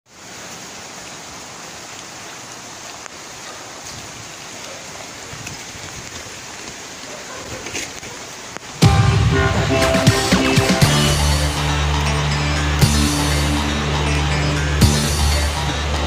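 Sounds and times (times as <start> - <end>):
heavy rain on wet pavement: 0.1 - 16.0
raindrop ticks: 1.8 - 8.8.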